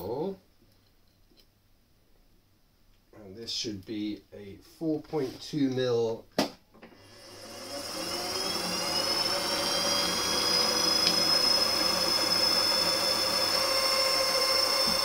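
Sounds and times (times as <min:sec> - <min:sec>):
milling machine motor whine: 0:07.0 - 0:15.0.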